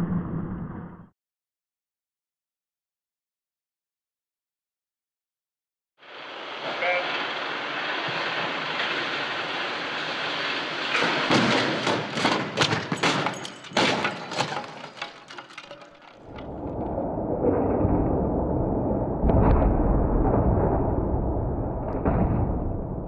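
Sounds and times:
steady rushing noise: 0:06.0 - 0:11.4
glass and debris: 0:07.9 - 0:16.4
heavy bangs and crunches: 0:08.1 - 0:16.8.

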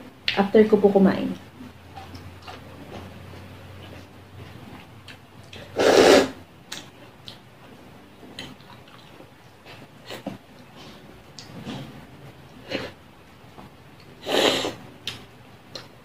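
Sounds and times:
eating with fingers: 0:01.9 - 0:07.5, 0:08.3 - 0:12.0.

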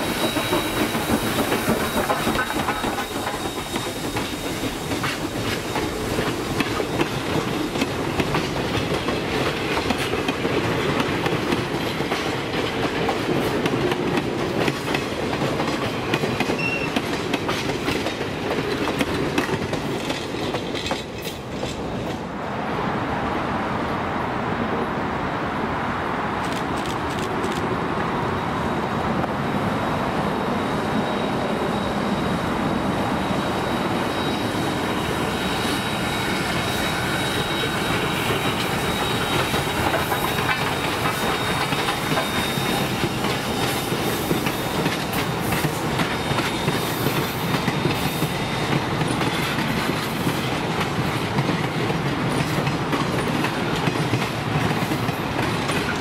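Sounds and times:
faint high wheel squeal: 0:00.0 - 0:05.8, 0:16.6 - 0:17.0, 0:29.8 - 0:44.8
steam train rumbling past: 0:00.0 - 0:56.0
wheels clicking over rail joints: 0:00.3 - 0:22.2.

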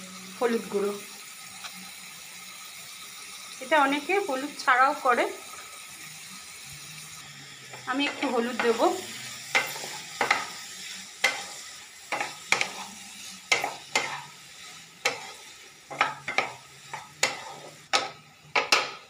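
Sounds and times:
vegetables sizzling in oil: 0:00.0 - 0:19.0
spatula scraping a pan: 0:06.9 - 0:19.0.

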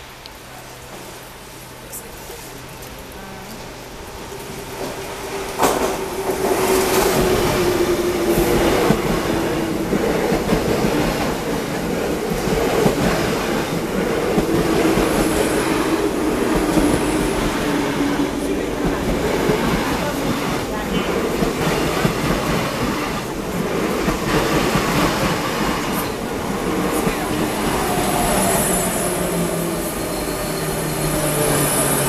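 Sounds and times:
steady train whine: 0:00.0 - 0:32.0
train wheels clattering over rails: 0:04.2 - 0:29.7.

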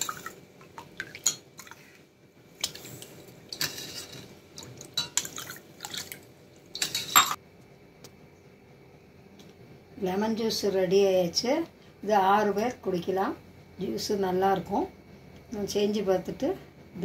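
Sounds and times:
liquid splashing in a pot: 0:00.0 - 0:07.4.

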